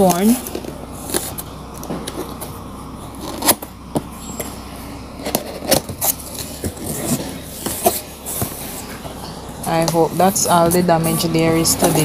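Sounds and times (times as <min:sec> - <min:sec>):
hands scraping cardboard box: 0:05.2 - 0:09.1.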